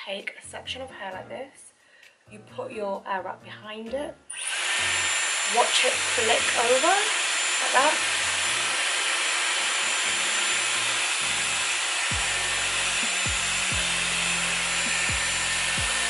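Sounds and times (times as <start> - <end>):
hair styler air rush: 4.3 - 16.0.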